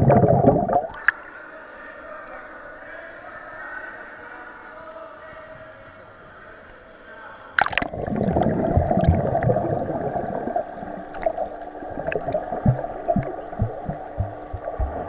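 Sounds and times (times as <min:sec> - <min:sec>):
underwater churning and gurgling: 0:00.0 - 0:01.1, 0:07.6 - 0:15.0
water splashing: 0:07.6 - 0:15.0
low underwater thumps: 0:12.0 - 0:15.0.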